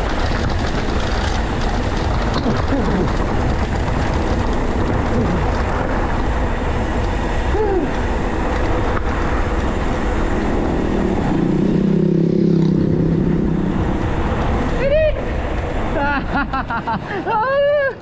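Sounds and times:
motorcycle engine running: 0.0 - 17.6
dense rumble: 0.0 - 17.9.

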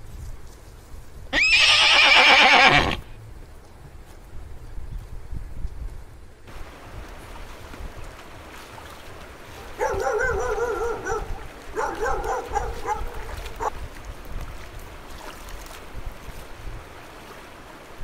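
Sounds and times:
shallow stream rushing: 6.4 - 18.0.

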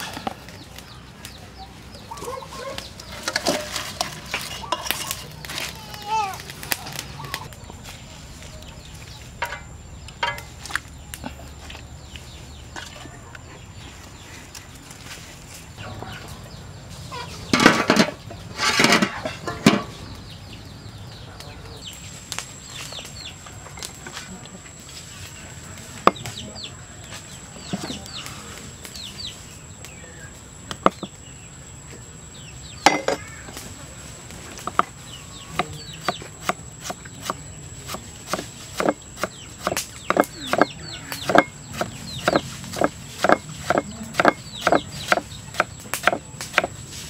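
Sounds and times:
chickens clucking: 0.0 - 5.8, 15.8 - 20.3, 34.4 - 46.7
knife cutting on wooden chopping block: 36.4 - 46.7.

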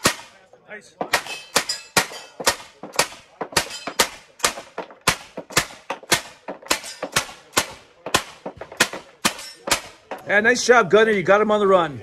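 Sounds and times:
hand-cranked gun firing sharp cracks: 1.1 - 10.0.

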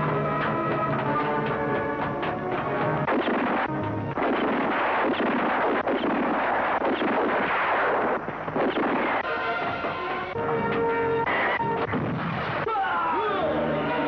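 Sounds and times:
rapid gunfire barrage: 0.0 - 10.4
music: 0.0 - 14.0.

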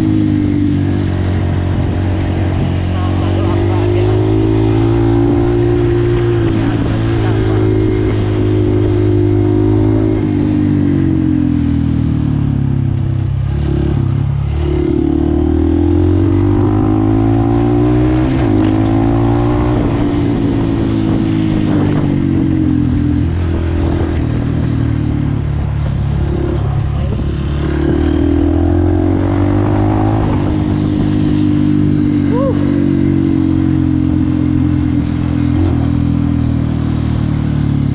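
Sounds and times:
dirt bike engine revving: 13.5 - 24.5, 26.2 - 36.4.

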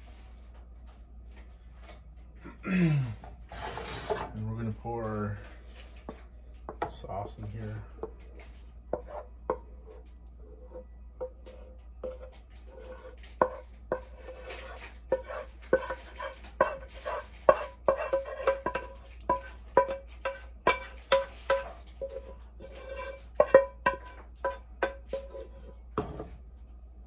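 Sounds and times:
utensil scraping metal saucepan: 3.5 - 4.6, 8.9 - 26.2.

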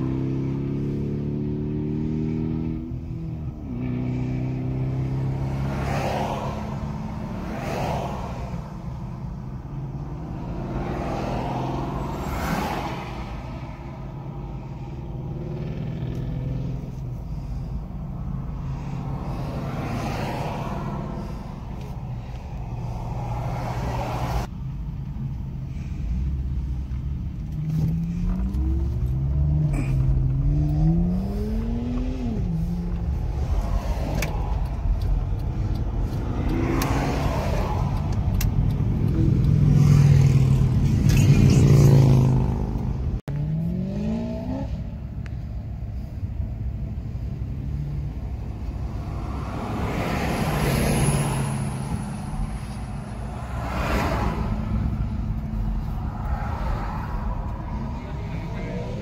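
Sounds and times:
car engine accelerating: 26.6 - 45.0.

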